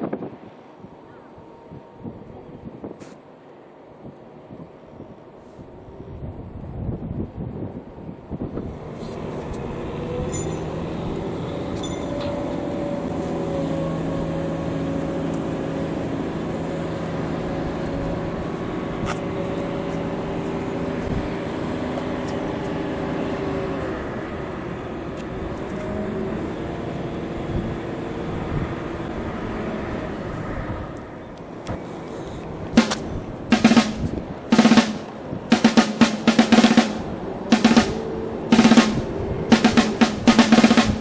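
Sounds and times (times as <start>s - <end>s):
wind: 0.0s - 41.0s
harbour noise: 7.7s - 41.0s
engine humming: 8.4s - 41.0s.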